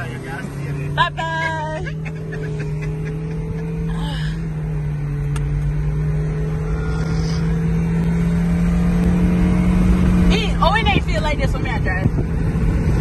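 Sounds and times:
car engine hum: 0.0 - 13.0
road rumble: 0.0 - 13.0.

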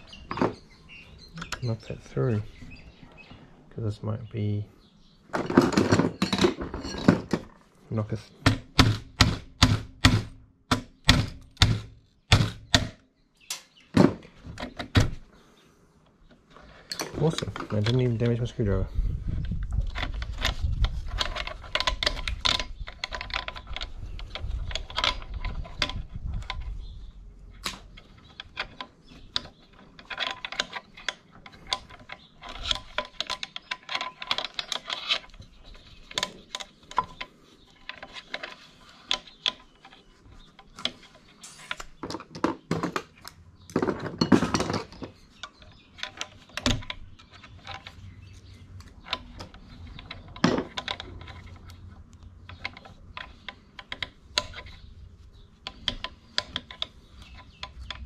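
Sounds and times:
metal clicks and clatters: 19.7 - 26.7, 27.5 - 40.0, 40.6 - 54.8.

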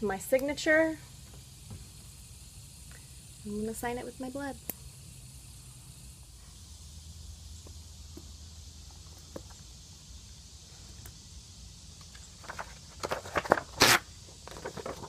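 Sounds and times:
faint steady hiss: 0.0 - 15.0
paper rustling and crackling: 12.4 - 15.0.

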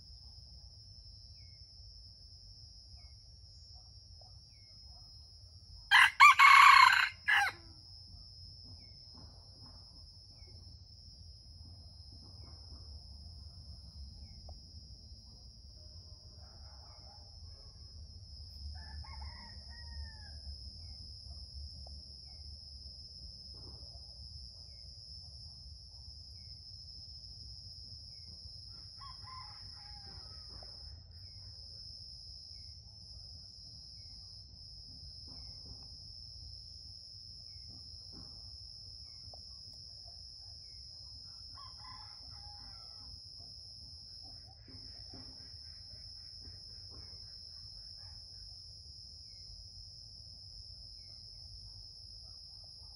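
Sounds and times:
rooster crowing: 5.9 - 7.7, 18.7 - 20.5, 28.9 - 30.7, 41.5 - 43.2.

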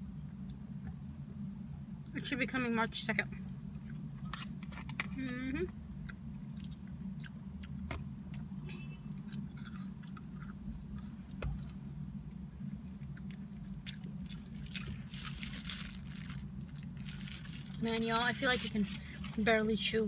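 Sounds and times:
steady low hum: 0.0 - 20.0
chewing and biting food: 9.2 - 11.8
foil wrapper crinkling: 14.2 - 20.0.

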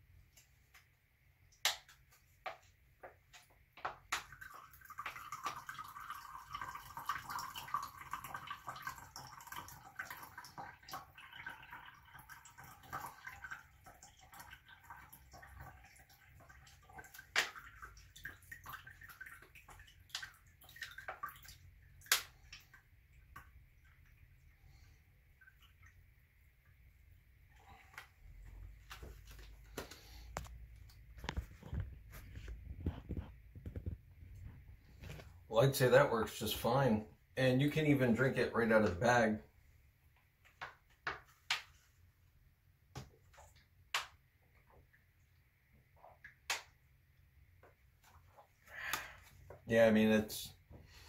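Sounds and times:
water trickling: 3.3 - 31.9
water dripping into glass: 4.1 - 24.5.

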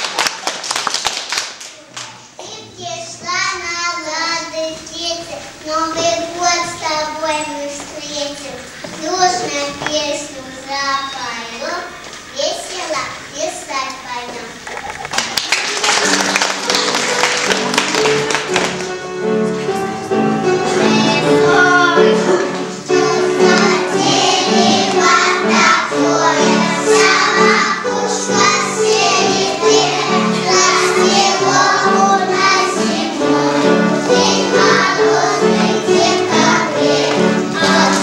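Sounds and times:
bouncy musical accompaniment: 15.4 - 38.0
children singing: 20.1 - 38.0.

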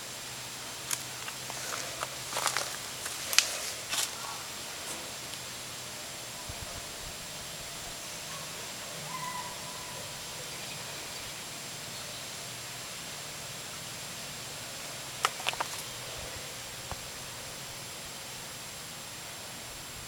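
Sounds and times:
steady outdoor hiss: 0.0 - 20.0
sharp clicks: 15.2 - 15.9.

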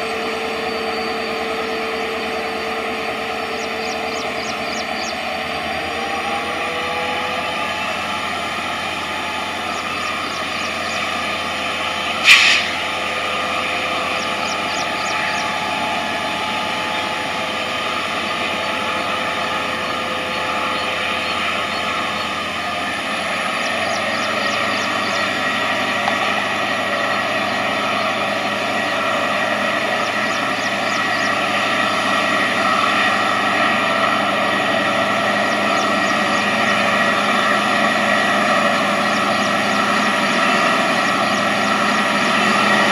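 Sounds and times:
locomotive engine whining hum: 0.0 - 42.9
sharp crack: 12.2 - 12.8.

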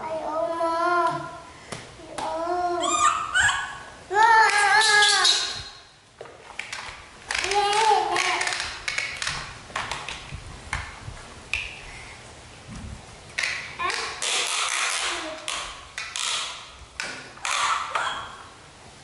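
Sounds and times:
plastic toy truck clattering: 6.6 - 10.2.

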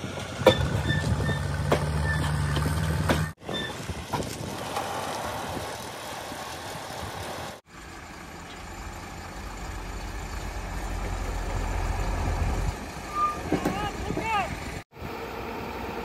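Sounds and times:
diesel engine rumble: 0.0 - 16.0
deep engine rumble: 5.0 - 16.0.

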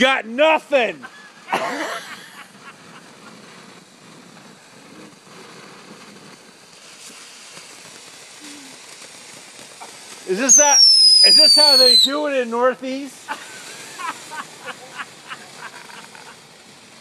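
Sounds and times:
fountain firework hissing: 0.0 - 17.0.

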